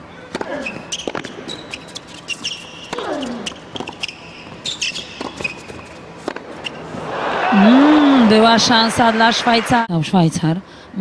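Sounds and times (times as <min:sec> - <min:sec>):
shoes squeaking on court: 0:00.2 - 0:07.1.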